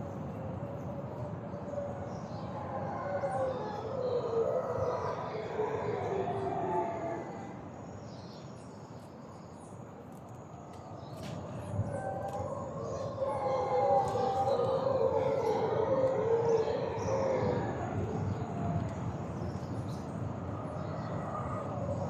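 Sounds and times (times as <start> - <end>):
howler monkeys roaring: 2.5 - 7.7, 11.7 - 18.9.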